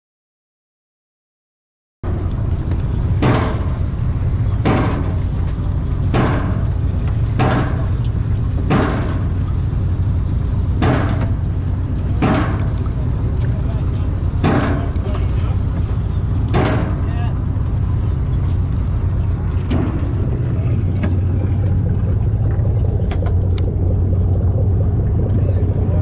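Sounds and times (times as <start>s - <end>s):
boat engine droning: 2.0s - 26.0s.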